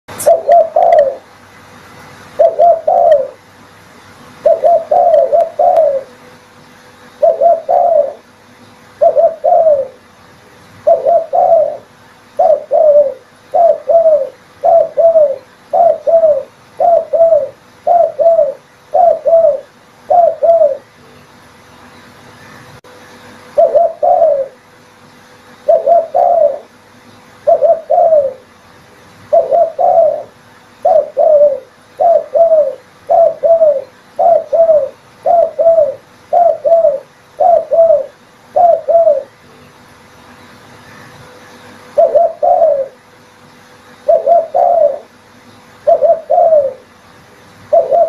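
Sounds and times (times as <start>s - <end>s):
dove cooing: 0.1s - 1.4s, 2.4s - 3.5s, 4.4s - 6.4s, 7.1s - 10.1s, 10.8s - 20.9s, 23.5s - 24.6s, 25.6s - 26.8s, 27.4s - 28.5s, 29.3s - 39.4s, 41.8s - 43.0s, 44.0s - 45.2s, 45.8s - 47.0s, 47.7s - 48.0s.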